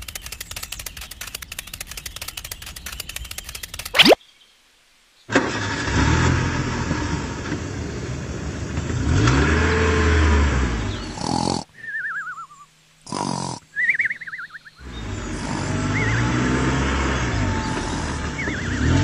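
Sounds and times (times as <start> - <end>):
car engine revving: 5.4 - 11.0, 14.8 - 19.0
cartoon snoring whistle: 11.0 - 12.5, 13.1 - 14.1, 15.1 - 19.0.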